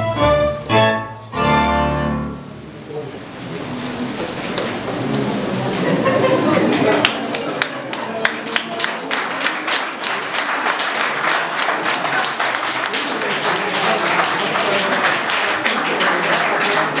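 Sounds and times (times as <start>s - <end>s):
voices among the clapping: 3.5s - 17.0s
audience applauding: 4.2s - 17.0s.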